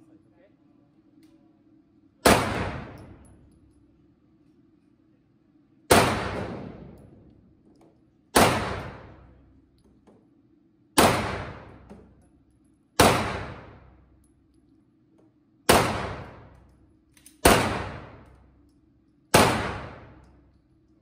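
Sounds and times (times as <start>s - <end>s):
pistol shots echoing: 2.2s - 3.2s, 5.9s - 7.0s, 8.3s - 9.3s, 11.0s - 11.9s, 13.0s - 14.0s, 15.7s - 16.6s, 17.4s - 18.4s, 19.3s - 20.3s.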